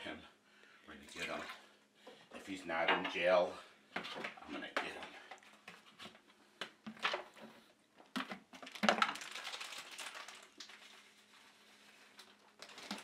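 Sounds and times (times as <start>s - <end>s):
plastic rustling: 6.8s - 13.0s.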